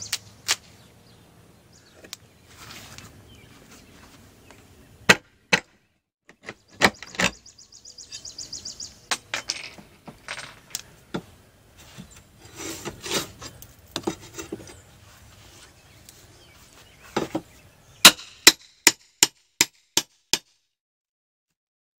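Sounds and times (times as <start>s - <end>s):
wood scraping: 1.9s - 5.2s, 9.1s - 17.6s.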